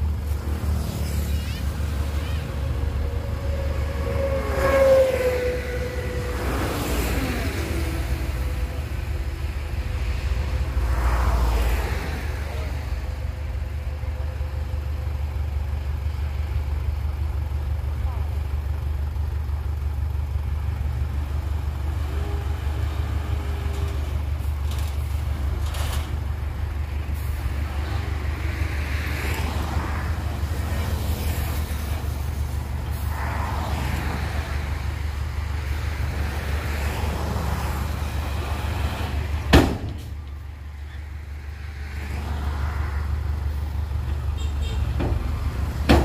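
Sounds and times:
diesel truck engine rumbling: 0.0 - 46.0.

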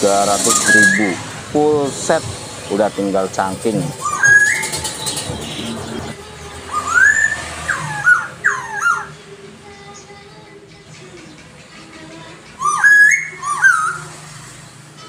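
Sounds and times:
bird whistling song: 0.2 - 1.3, 3.9 - 5.8, 6.7 - 9.2, 11.2 - 14.8.

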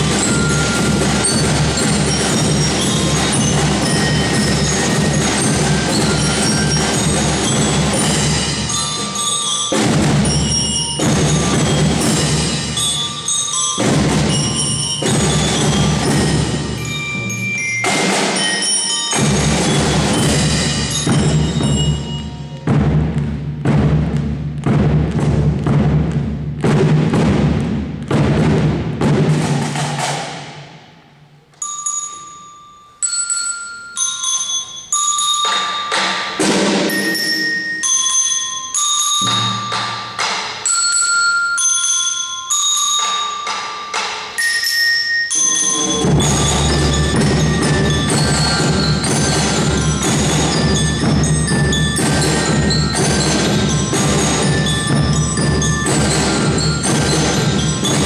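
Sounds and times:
bell lyre melody: 0.0 - 22.9, 31.4 - 58.0
marching drums: 0.0 - 31.0, 35.9 - 37.4, 39.1 - 40.7, 45.6 - 58.0.

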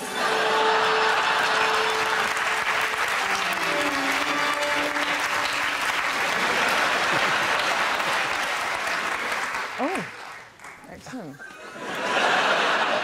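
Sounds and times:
audience applauding: 0.0 - 13.0
held musical notes: 1.0 - 6.2.

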